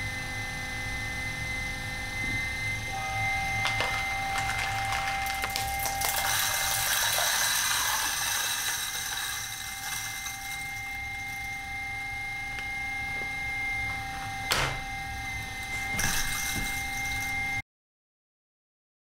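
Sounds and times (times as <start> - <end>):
coffee grinder grinding beans: 2.9 - 17.6.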